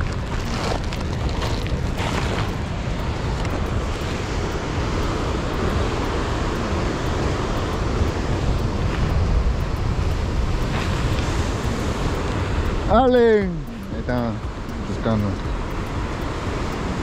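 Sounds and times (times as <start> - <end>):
sea washing against rocks: 0.0 - 13.4
wind buffeting microphone: 0.0 - 17.0.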